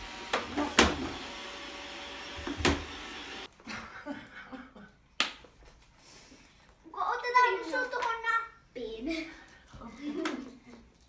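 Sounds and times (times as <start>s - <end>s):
robot vacuum cleaner running: 0.0s - 3.5s.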